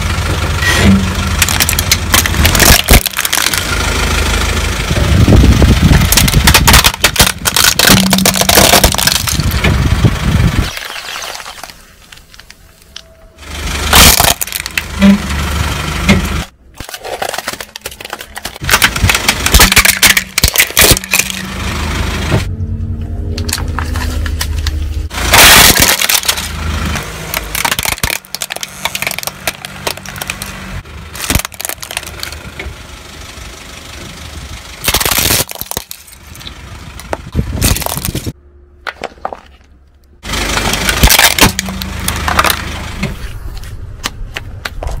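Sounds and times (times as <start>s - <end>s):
car engine running low: 0.0s - 45.0s
plastic toys cracking under tyre: 1.3s - 4.0s, 5.5s - 9.8s, 10.6s - 12.6s, 13.9s - 14.9s, 16.7s - 21.5s, 23.4s - 32.5s, 34.8s - 39.8s, 40.4s - 42.7s.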